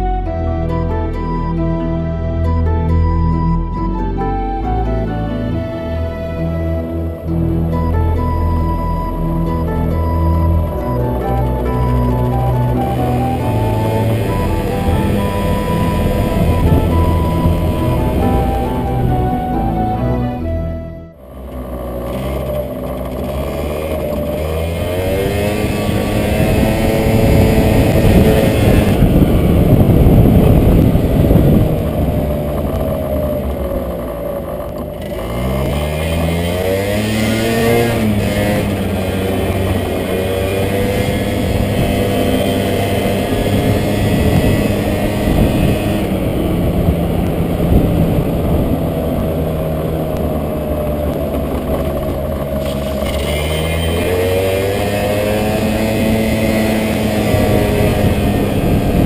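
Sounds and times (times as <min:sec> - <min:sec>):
wind noise on microphone: 0:00.0 - 0:21.1, 0:23.0 - 0:59.0
scooter engine accelerating: 0:00.0 - 0:59.0.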